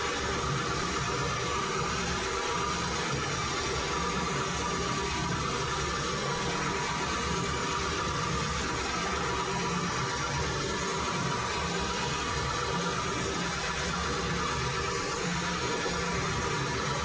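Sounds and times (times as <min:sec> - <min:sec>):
faint steady whine: 0:00.0 - 0:17.0
metal lathe humming: 0:00.0 - 0:17.0.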